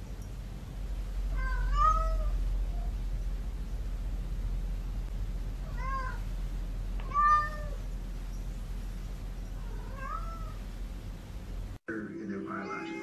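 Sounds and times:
cat meowing: 1.3s - 2.9s, 5.6s - 6.2s, 7.0s - 7.8s, 9.6s - 10.6s.

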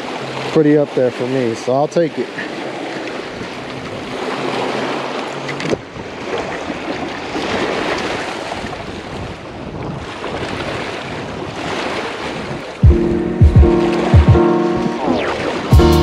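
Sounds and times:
water washing against shore: 0.0s - 15.8s
wind rushing over microphone: 8.5s - 15.7s.

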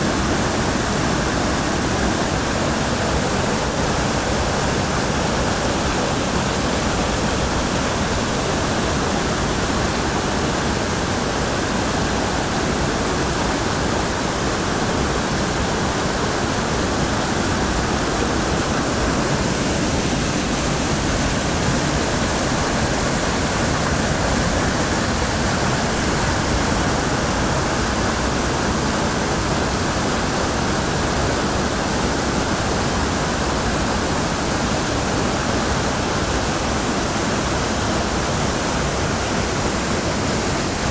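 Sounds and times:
water rushing over rocks: 0.0s - 40.9s.

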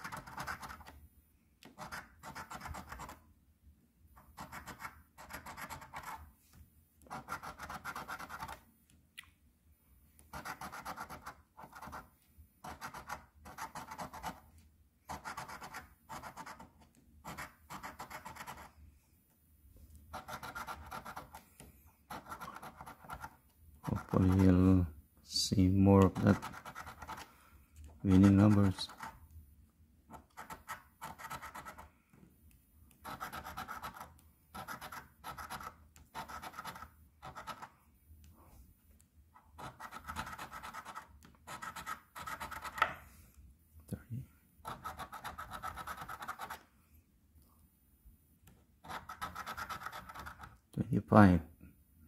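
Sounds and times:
coin scraping scratch-off ticket: 20.1s - 21.4s, 22.1s - 24.6s, 26.0s - 27.3s, 28.0s - 29.1s, 30.2s - 31.8s, 33.0s - 37.7s, 39.6s - 42.8s, 44.6s - 46.6s, 48.8s - 50.6s.

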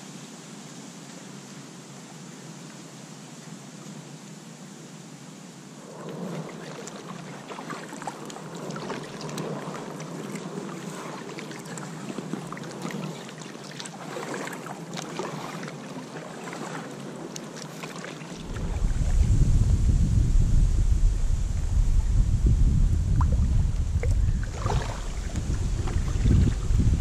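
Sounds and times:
wind rumble on microphone: 5.7s - 16.0s, 18.2s - 27.0s
paddles splashing in water: 5.8s - 19.3s, 23.1s - 27.0s.

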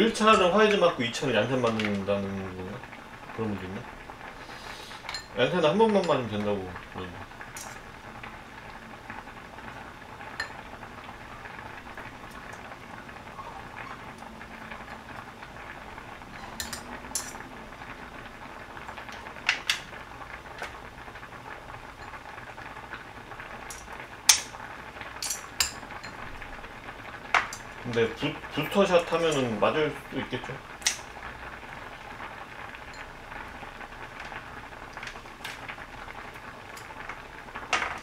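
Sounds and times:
food bubbling in a pot: 0.0s - 38.0s
metal utensils clinking on dishes: 16.4s - 17.4s, 25.2s - 26.2s.

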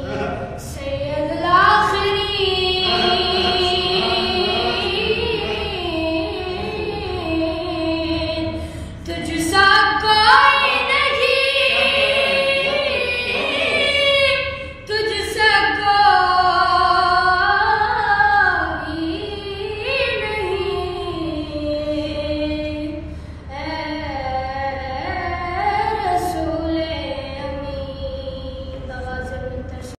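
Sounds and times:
person singing devotional song: 0.0s - 9.7s, 10.4s - 14.6s.

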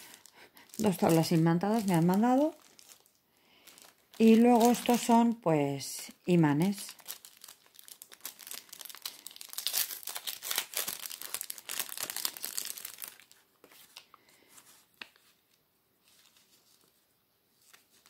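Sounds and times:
plastic packet crinkling and tearing: 0.0s - 5.4s, 6.4s - 14.2s.

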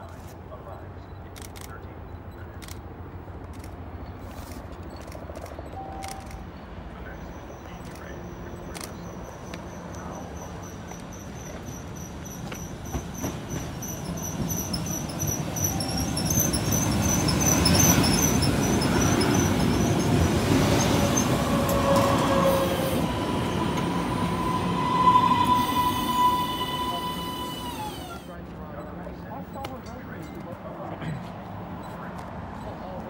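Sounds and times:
light-rail train rolling past: 0.0s - 33.0s
train wheels squealing: 7.1s - 28.9s.

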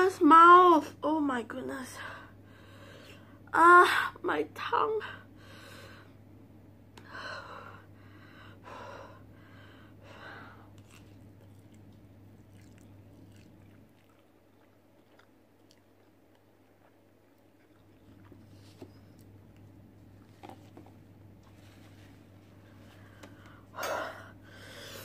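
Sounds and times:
chewing and slurping noodles: 10.8s - 20.3s.

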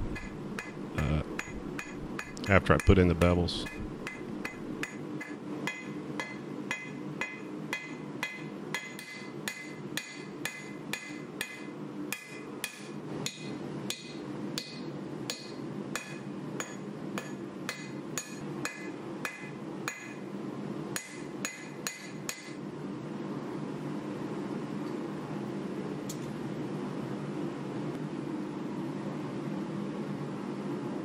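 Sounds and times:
hammer striking metal on anvil: 0.0s - 20.2s, 21.0s - 22.6s
steady low hum: 0.0s - 31.0s.

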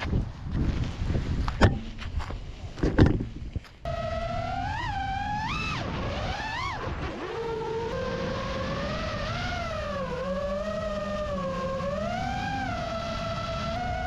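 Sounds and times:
quadcopter motors whining: 3.9s - 14.0s.

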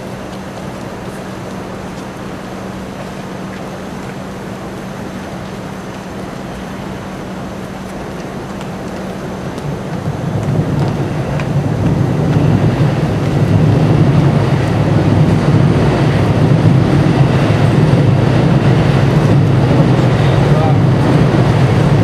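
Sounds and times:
loud low steady rumble: 0.0s - 22.0s.

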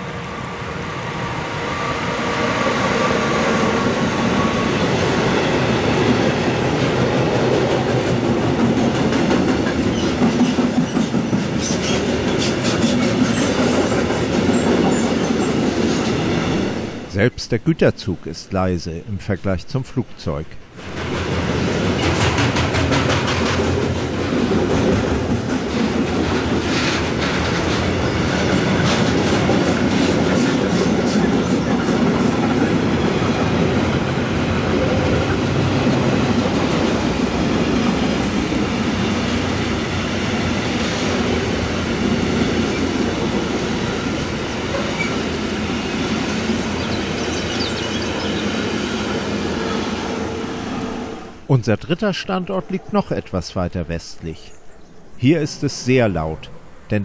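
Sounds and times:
train wheels clattering over rails: 2.3s - 17.0s, 20.8s - 50.5s.

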